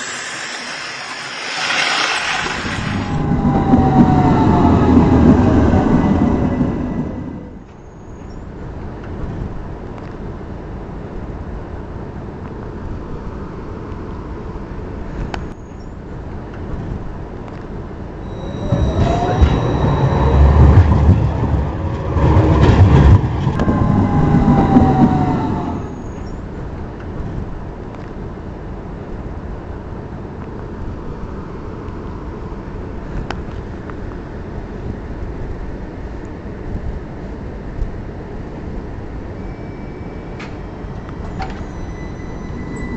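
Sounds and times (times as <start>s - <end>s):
motor whine: 0.0s - 5.8s
model tram rumbling on rails: 0.0s - 42.9s.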